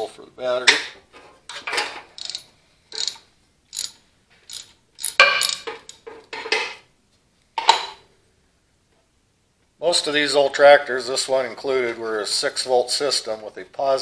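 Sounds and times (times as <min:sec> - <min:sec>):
metal cable terminal clatter: 0:01.7 - 0:06.4
ratchet wrench clicking: 0:02.2 - 0:06.0
metal clinks: 0:02.2 - 0:06.1.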